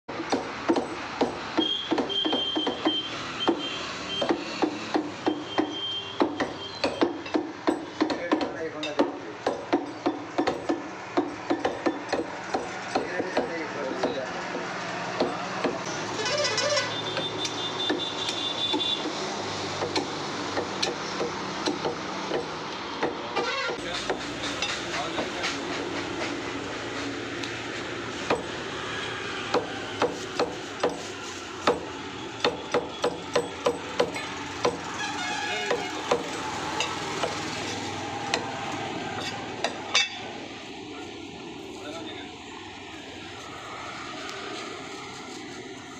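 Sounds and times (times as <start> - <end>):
cleaver chopping meat on wood: 0.1 - 15.9, 17.8 - 26.5, 28.2 - 28.6, 29.4 - 34.9, 35.6 - 38.6.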